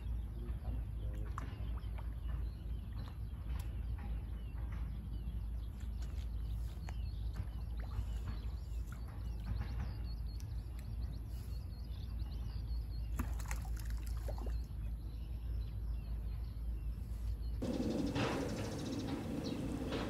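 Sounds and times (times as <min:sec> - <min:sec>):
small birds chirping: 0:00.0 - 0:20.0
wind rumble on microphone: 0:14.3 - 0:20.0.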